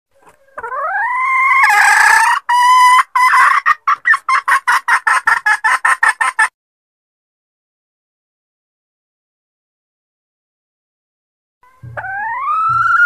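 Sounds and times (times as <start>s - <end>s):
hen cackling: 0.2s - 6.5s, 11.6s - 13.0s.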